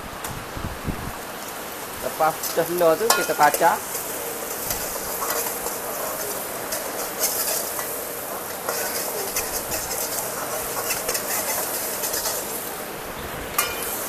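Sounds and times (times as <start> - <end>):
egg sizzling in hot oil: 1.4 - 14.0
utensil scraping and tapping pan: 3.1 - 12.5, 13.6 - 14.0.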